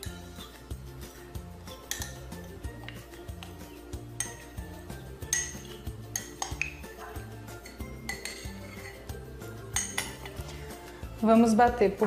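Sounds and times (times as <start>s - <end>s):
background music with bass: 0.0s - 12.0s
cutlery clinking against dishes: 1.7s - 3.6s, 4.2s - 4.6s, 5.2s - 10.6s.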